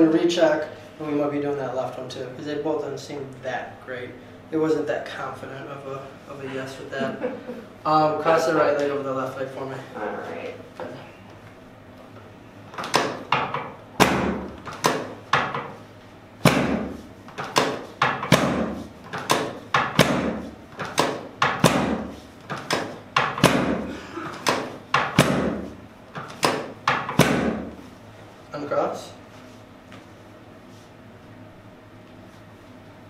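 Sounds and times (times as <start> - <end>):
sharp thuds on padded table: 16.4 - 27.8.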